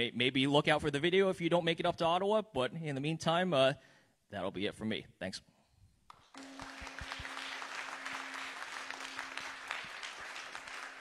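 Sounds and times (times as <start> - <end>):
audience applauding: 6.1 - 11.0
low hum: 6.4 - 10.0.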